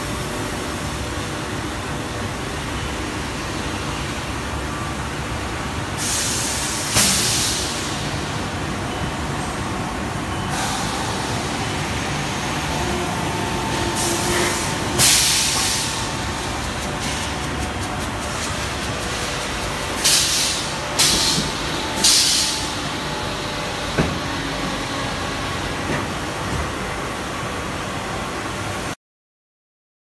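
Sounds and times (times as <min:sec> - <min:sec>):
moulding machine running: 0:10.5 - 0:26.2.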